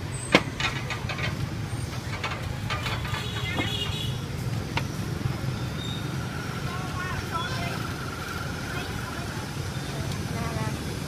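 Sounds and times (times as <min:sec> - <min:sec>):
motorbike engines rumbling: 0:00.0 - 0:11.0.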